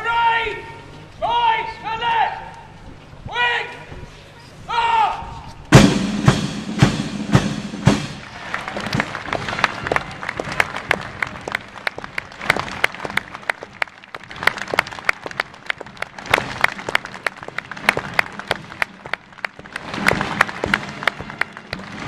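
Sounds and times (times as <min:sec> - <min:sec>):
crowd applauding: 0:08.2 - 0:22.0
person clapping sharply: 0:08.5 - 0:22.0.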